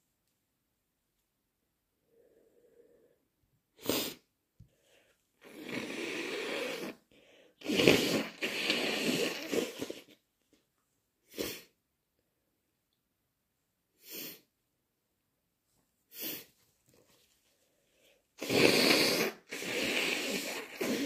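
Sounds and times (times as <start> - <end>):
person blowing nose: 3.8 - 4.3, 5.4 - 10.2, 11.3 - 11.8, 14.0 - 14.5, 16.1 - 16.6, 18.4 - 21.0.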